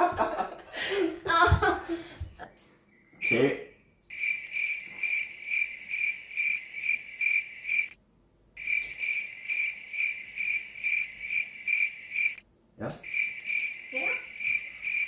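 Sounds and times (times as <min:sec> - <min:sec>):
cricket chirping: 0:03.2 - 0:08.0, 0:08.6 - 0:12.4, 0:13.0 - 0:15.0.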